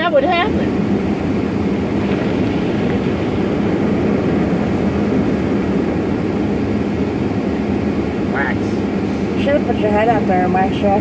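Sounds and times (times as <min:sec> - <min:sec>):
car wash machinery rumbling: 0:00.0 - 0:11.0.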